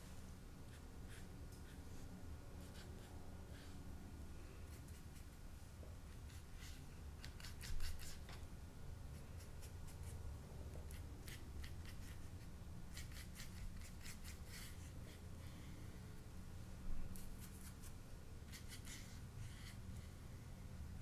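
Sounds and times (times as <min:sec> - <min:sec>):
low room hum: 0:00.0 - 0:21.0
paintbrush scratchy strokes on paper: 0:00.7 - 0:03.8, 0:06.1 - 0:08.3, 0:10.9 - 0:15.3, 0:17.2 - 0:20.1.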